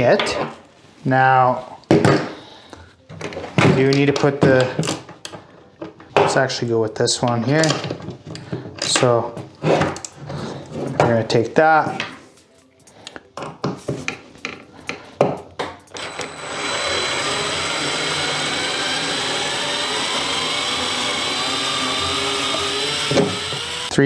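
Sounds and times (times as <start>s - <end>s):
electric screwdriver whining: 15.9s - 24.0s.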